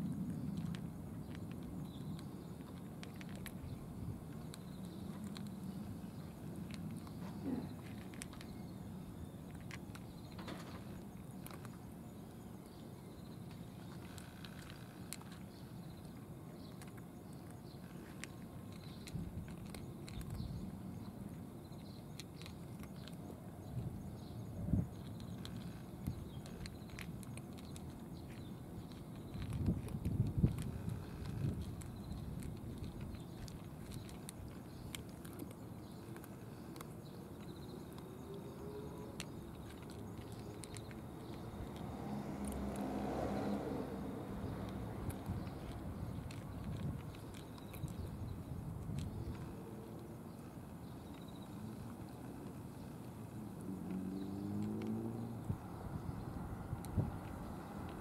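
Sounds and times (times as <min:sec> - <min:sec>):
low background rumble: 0:00.0 - 0:53.7
cat crunching food: 0:00.0 - 0:56.2, 0:56.8 - 0:58.0
cat chewing food from dish: 0:24.9 - 0:38.0, 0:39.1 - 0:41.8, 0:44.4 - 0:53.0.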